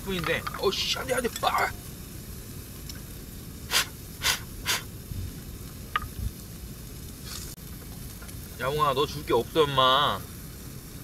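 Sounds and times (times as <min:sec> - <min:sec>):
breathy puffs of breath: 0:03.7 - 0:04.9.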